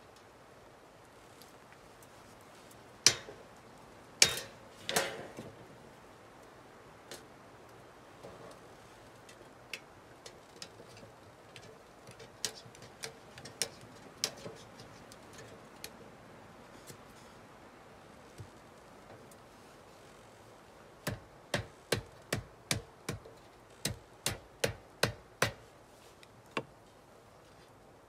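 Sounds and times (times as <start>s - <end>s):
hatchet chopping wooden block: 21.0s - 25.6s.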